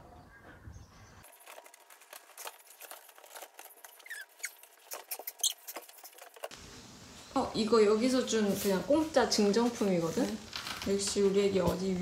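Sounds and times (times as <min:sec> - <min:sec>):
short thin squeaks: 0:02.7 - 0:06.5.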